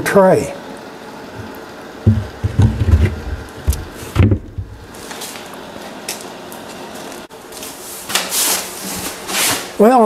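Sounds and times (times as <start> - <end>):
workshop background hum: 0.0 - 10.0
wooden tray thump: 2.1 - 4.8.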